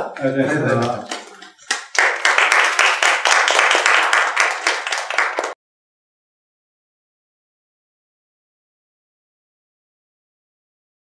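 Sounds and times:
people clapping: 0.0s - 5.6s.

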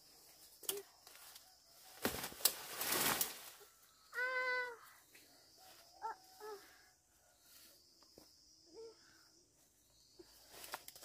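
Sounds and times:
leaves and brush rustling: 0.0s - 6.7s, 9.6s - 11.0s.

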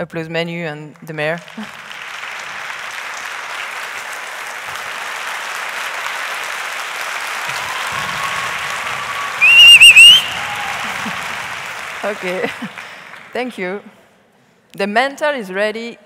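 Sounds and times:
audience applauding: 1.4s - 13.4s
high wavering whistle: 9.3s - 10.6s.

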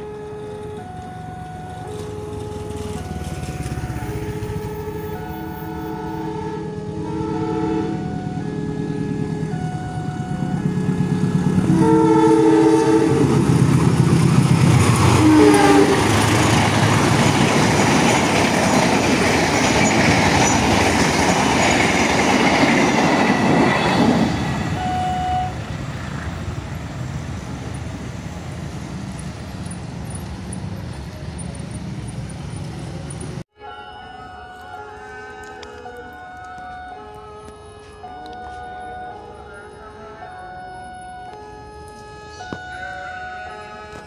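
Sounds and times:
locomotive horn blasts: 4.2s - 13.6s, 15.1s - 16.4s, 24.7s - 25.6s, 33.6s - 44.0s
train wheels rushing on rails: 8.0s - 33.4s.

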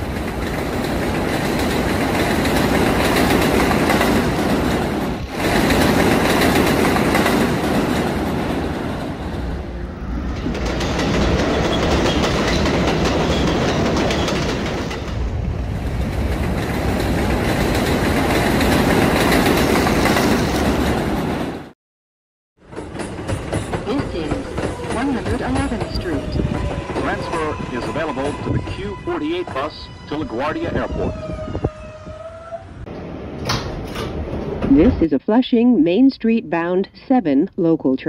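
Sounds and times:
train wheels clattering on rails: 0.0s - 9.6s, 10.2s - 21.6s, 22.6s - 28.4s.

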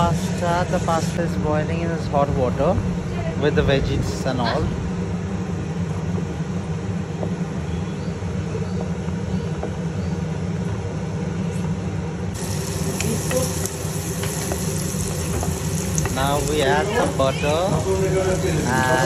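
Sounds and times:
steady low rumble: 0.0s - 9.2s
pot boiling: 12.3s - 19.0s
onions sizzling in pan: 12.4s - 19.0s.

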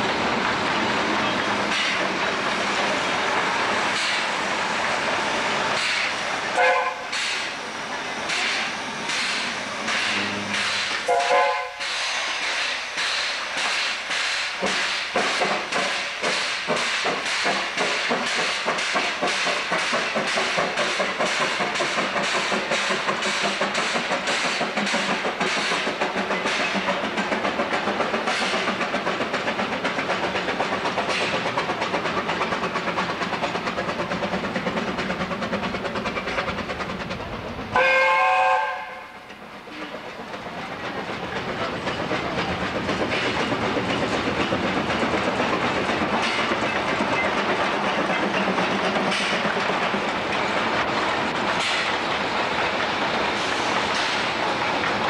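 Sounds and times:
steam locomotive chuffing: 0.0s - 55.0s
steam whistle blast: 6.6s - 7.2s, 10.2s - 11.9s, 37.8s - 39.2s.

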